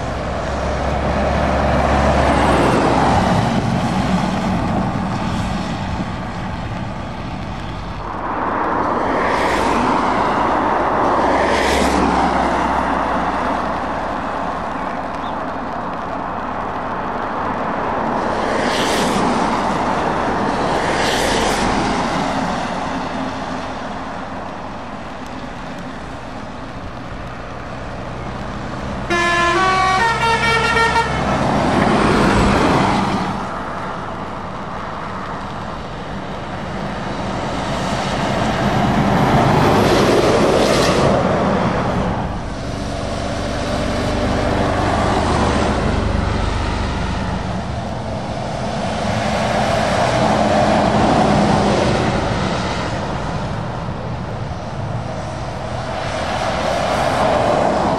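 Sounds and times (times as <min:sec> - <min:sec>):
lorries driving past: 0:00.0 - 0:57.9
tyre hiss on wet road: 0:00.0 - 0:57.9
musical air horn tune: 0:29.1 - 0:31.3.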